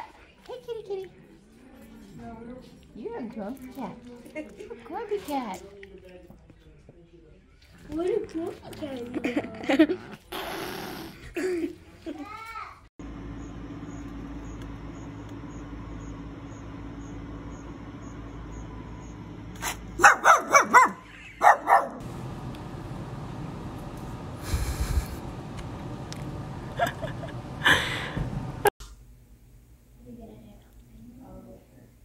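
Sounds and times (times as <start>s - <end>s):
small dog yipping: 20.0s - 22.0s.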